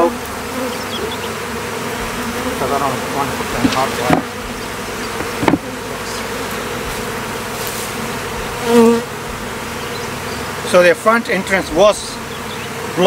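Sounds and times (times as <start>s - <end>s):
bee passing close: 0.0s - 13.0s
honeybees buzzing: 0.0s - 13.0s
single knock: 3.5s - 5.7s.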